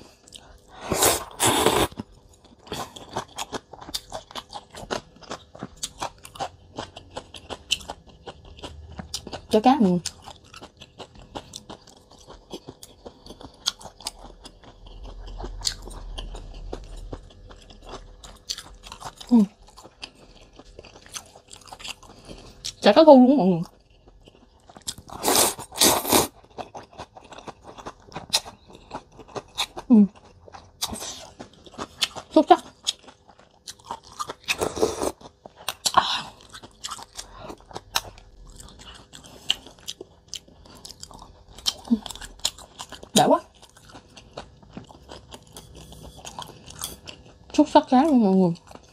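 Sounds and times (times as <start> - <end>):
person chewing food: 0.0 - 22.8, 23.6 - 47.6, 48.5 - 48.9.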